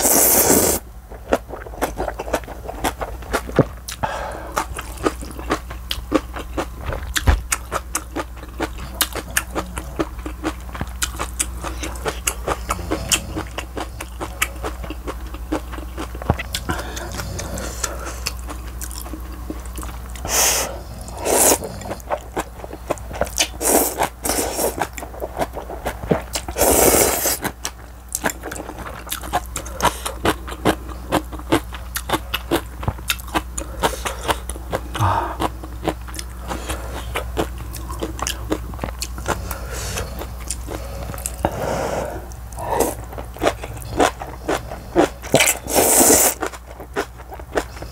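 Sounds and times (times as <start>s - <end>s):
slurping noodles: 0.0s - 0.8s, 20.3s - 22.1s, 23.6s - 24.9s, 26.5s - 27.5s, 43.9s - 46.5s.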